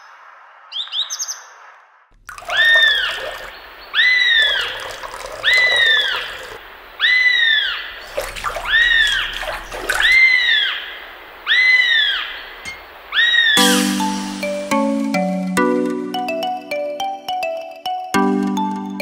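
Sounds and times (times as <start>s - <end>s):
water splashing and trickling: 2.1s - 15.4s
bird whistling call: 2.5s - 14.6s.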